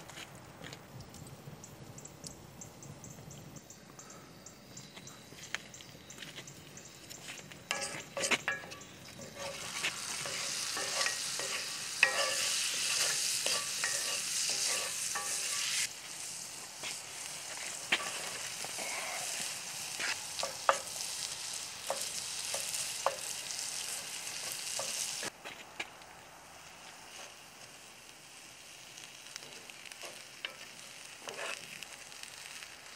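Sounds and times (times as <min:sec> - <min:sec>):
butter and garlic sizzling: 0:06.2 - 0:25.4, 0:26.4 - 0:32.9
wooden spatula scraping pan: 0:07.7 - 0:15.9, 0:31.2 - 0:31.7.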